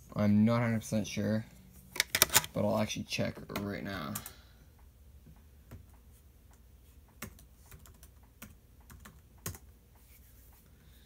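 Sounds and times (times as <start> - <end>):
typing on a keyboard: 7.1 - 9.7.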